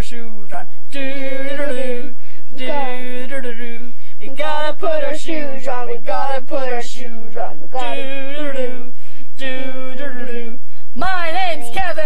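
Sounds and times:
girl singing unaccompanied: 0.9s - 3.6s, 4.2s - 7.0s, 9.4s - 12.0s.

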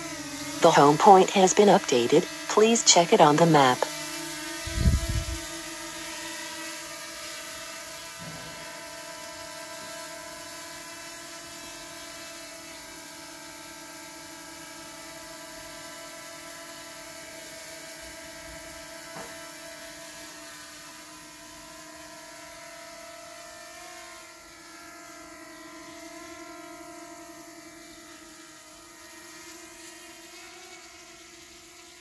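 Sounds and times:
drone propellers buzzing: 4.6s - 5.5s.

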